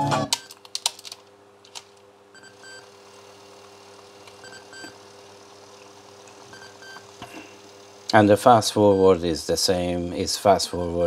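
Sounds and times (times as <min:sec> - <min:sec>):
cassette mechanism clicks: 0:00.3 - 0:02.0
motor humming: 0:02.3 - 0:09.3.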